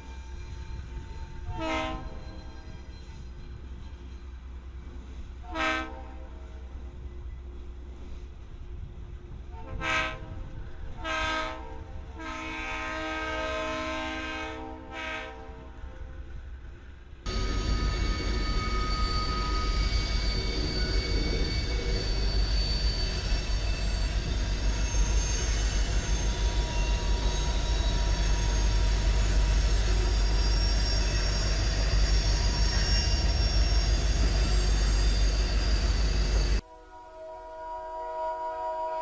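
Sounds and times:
high-pitched wheel squeal: 0.0 - 4.4, 17.3 - 36.6
train wheels rumbling on rail: 0.0 - 36.8.

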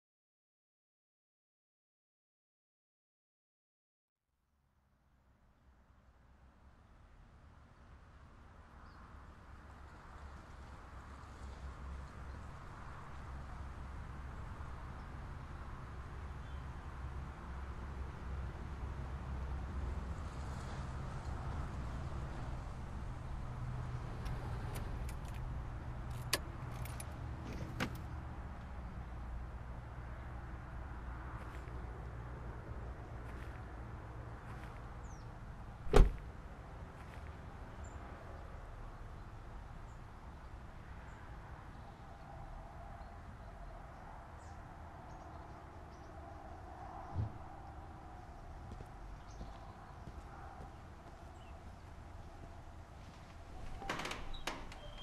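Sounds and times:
car door unlatching and opening: 27.5 - 28.0, 35.9 - 36.2
soft low thump: 35.9 - 36.2, 47.1 - 47.7
low rumble: 47.1 - 48.2
faint bird chirps: 54.3 - 55.0.

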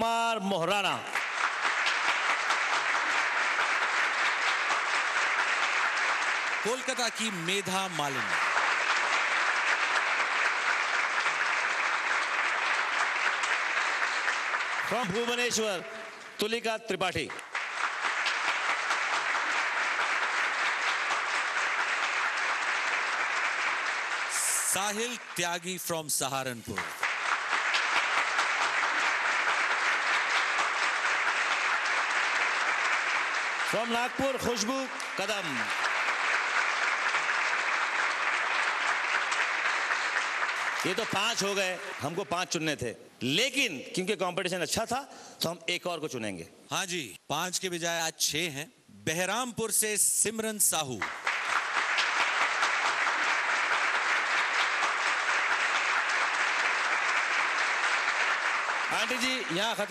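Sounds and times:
audience applauding: 0.0 - 42.7, 50.8 - 59.9.

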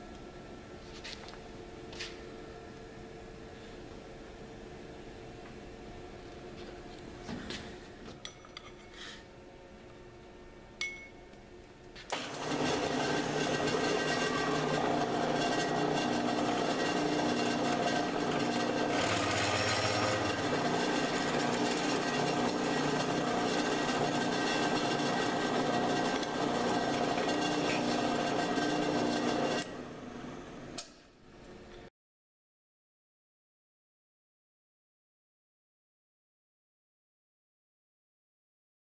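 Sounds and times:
drill press motor humming: 12.1 - 30.0
drill boring into steel: 12.4 - 29.7.

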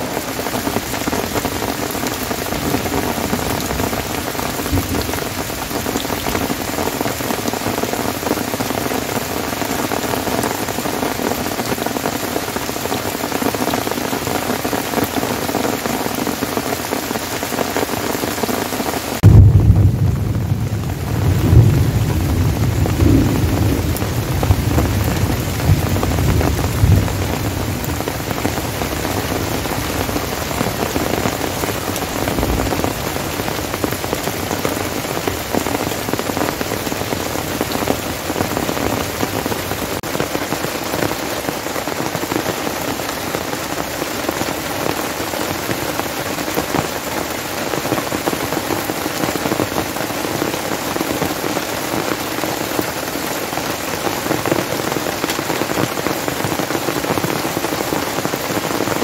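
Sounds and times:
heavy rain on tent and foliage: 0.0 - 59.0
low thunder rumbling: 0.8 - 6.8, 19.2 - 40.0.

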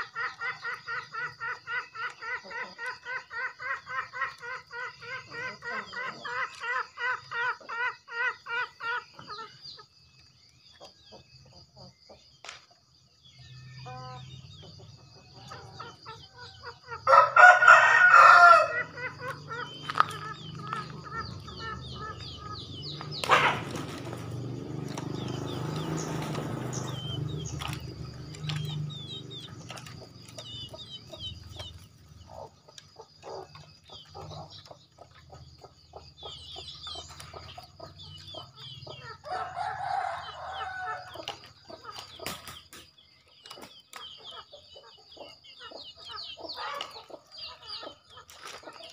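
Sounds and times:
junglefowl crowing: 0.0 - 9.5, 15.4 - 29.0, 38.9 - 41.4
high insect whine: 13.2 - 42.7
small bird chirps: 18.2 - 48.9.

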